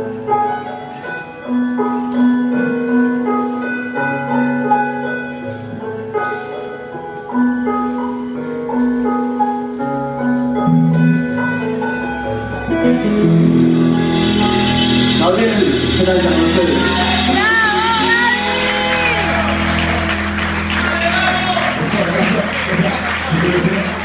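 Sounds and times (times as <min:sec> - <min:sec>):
rock band playing: 0:10.5 - 0:24.0.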